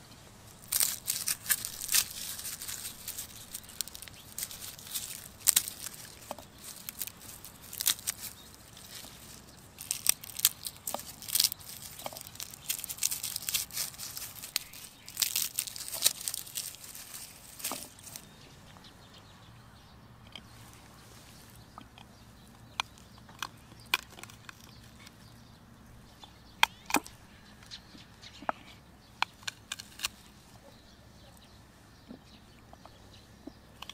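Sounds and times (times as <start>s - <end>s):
garlic skins crackling and tearing: 0.4s - 18.3s, 20.3s - 25.3s, 26.5s - 30.7s.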